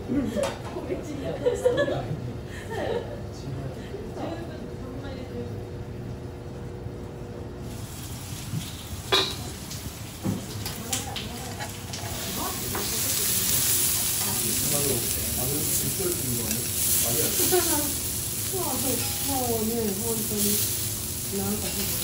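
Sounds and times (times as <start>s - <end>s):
steak sizzling on a griddle: 7.6s - 22.0s
metal spatula scraping griddle: 18.8s - 20.7s.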